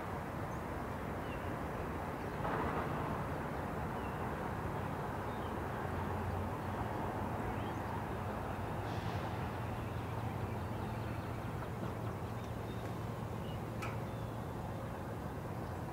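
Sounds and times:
freight train rumbling: 8.2 - 15.9.

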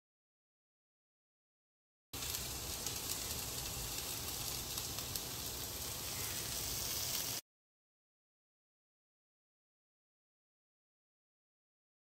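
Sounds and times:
chickpeas sizzling in oil: 2.2 - 7.4.

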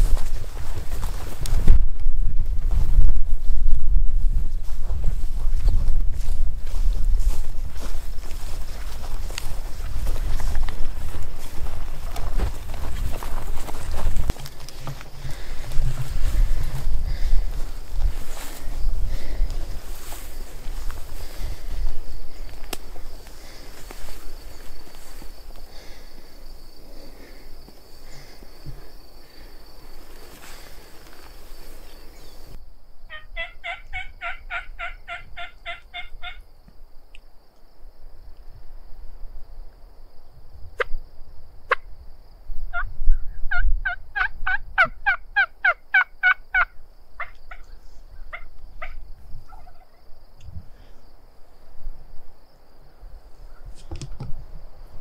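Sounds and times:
outdoor noise: 0.0 - 55.0
turkey clucks: 33.1 - 36.4, 43.5 - 47.7, 48.3 - 50.0
turkey yelping: 33.1 - 36.4, 43.8 - 47.7, 48.3 - 50.0.

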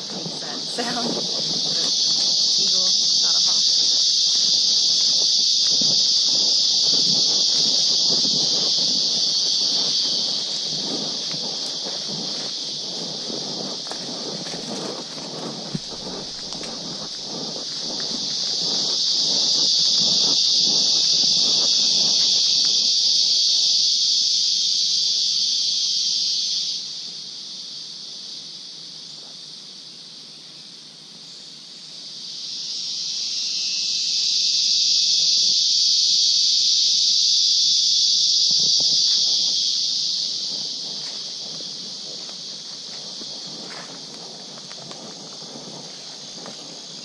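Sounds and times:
faint footsteps on dirt: 0.0 - 23.3, 38.4 - 47.0
cicada buzzing: 0.0 - 47.0.

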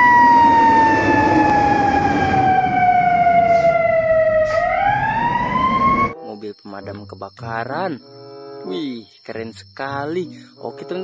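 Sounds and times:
fire engine siren wailing: 0.0 - 6.2
truck low rumble: 0.2 - 6.0.

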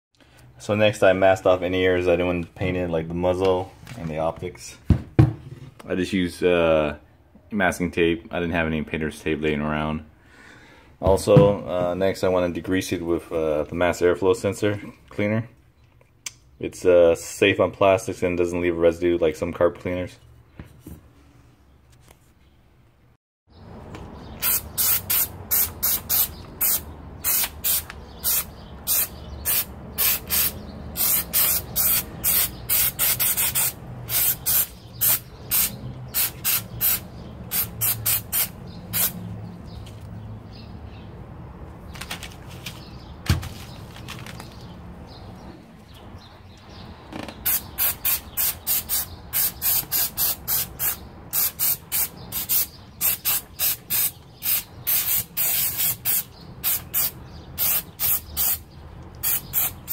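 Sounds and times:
aerosol spray hissing bursts: 24.4 - 39.2, 47.5 - 58.6, 59.2 - 59.9.

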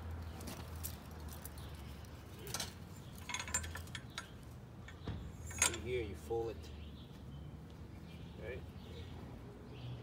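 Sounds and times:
metal pipe clinking: 2.5 - 5.9.

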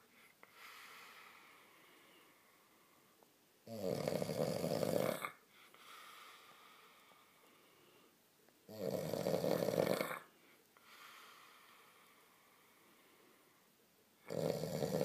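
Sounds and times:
quiet breathing: 0.0 - 3.8, 4.6 - 15.0
man snoring: 3.7 - 5.4, 8.7 - 10.3, 14.3 - 15.0.

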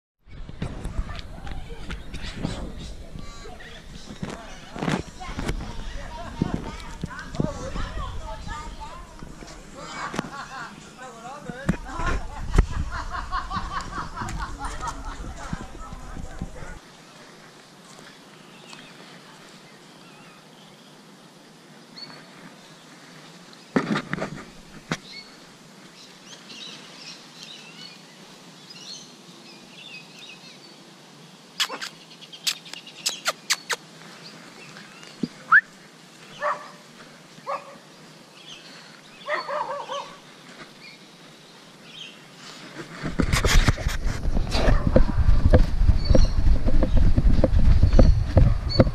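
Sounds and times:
birds chirping: 0.2 - 16.8, 31.6 - 42.7, 44.4 - 48.9
camera rubbing against hand: 0.3 - 10.5, 23.7 - 25.2, 42.4 - 48.9
short bird calls: 31.6 - 33.8.

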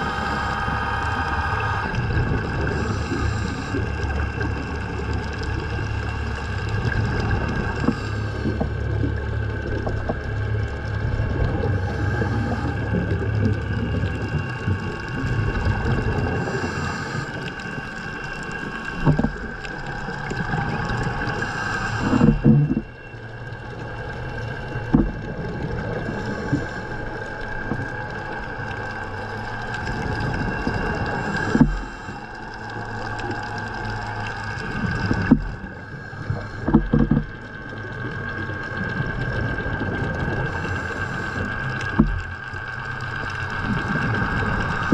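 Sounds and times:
exhaled bubbles gurgling: 0.0 - 44.9
high-pitched hum: 0.0 - 44.9
regulator breathing hiss: 2.7 - 4.2, 16.3 - 17.6, 21.1 - 22.4.

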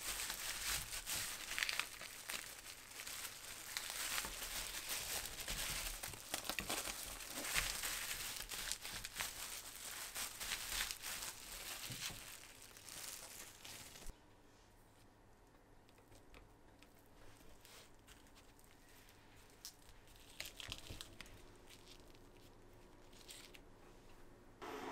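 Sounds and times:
bamboo mat rustling: 0.0 - 14.1
plastic gloves crinkling: 0.0 - 14.1, 17.0 - 23.8.

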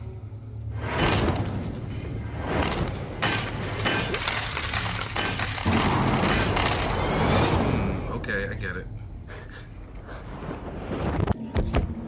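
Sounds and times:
gold coins clattering and clinking: 3.2 - 7.2.

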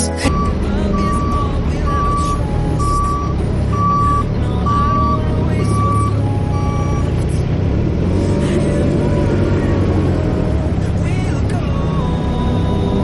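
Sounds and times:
diesel engines rumbling: 0.0 - 13.0
reversing alarm beeping: 0.2 - 7.3.

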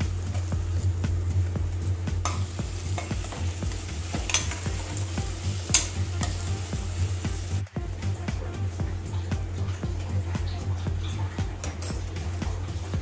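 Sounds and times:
food sizzling in hot oil: 0.0 - 13.0
steady low hum: 0.0 - 13.0.

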